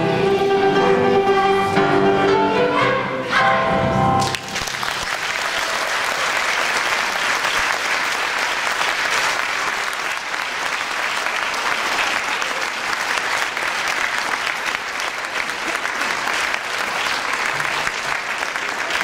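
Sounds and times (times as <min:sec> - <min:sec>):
audience applauding: 0:04.2 - 0:19.0.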